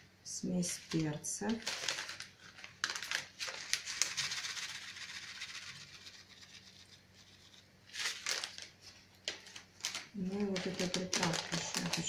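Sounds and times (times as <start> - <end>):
spice rustling hiss: 1.6 - 9.1.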